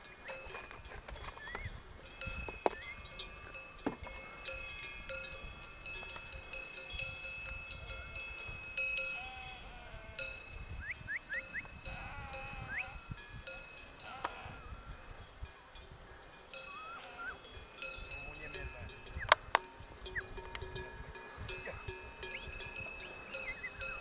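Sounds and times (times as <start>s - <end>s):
sheep bells clanking: 0.0s - 14.7s, 15.4s - 24.0s
sheep bleating: 9.2s - 10.3s, 11.9s - 13.0s, 14.0s - 14.7s.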